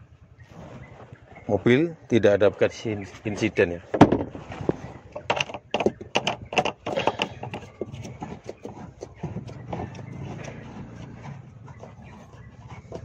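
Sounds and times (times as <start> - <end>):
board scraping: 0.4 - 1.6, 3.2 - 13.0
board knocking on plastic trim: 5.2 - 10.1.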